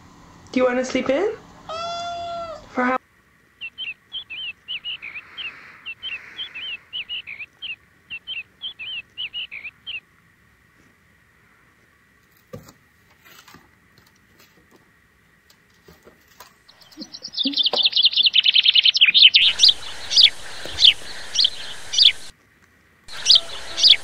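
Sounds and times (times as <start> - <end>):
steady background hiss: 0.0 - 24.0
birds chirping: 3.5 - 10.0, 16.7 - 22.3, 23.1 - 24.0
faint clicks: 19.4 - 24.0.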